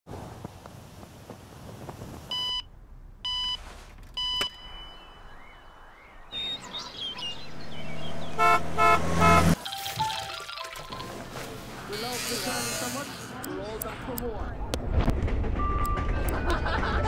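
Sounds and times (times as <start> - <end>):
short electronic beeps: 3.3 - 3.6, 4.2 - 7.4
car engine passing: 6.4 - 9.6
car horn toots: 8.3 - 9.6.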